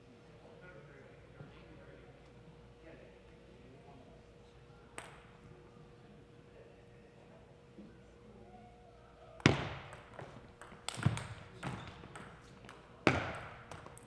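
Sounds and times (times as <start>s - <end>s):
table tennis ball clicks: 9.4s - 14.0s.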